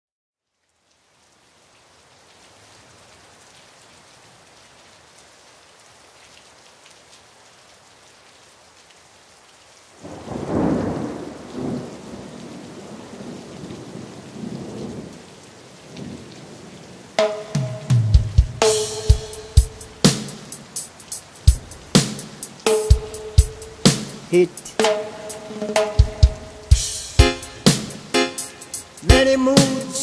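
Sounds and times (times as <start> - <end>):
steady rain hiss: 0.4 - 30.0
rumbling thunderclap: 10.0 - 15.1
song: 17.2 - 30.0.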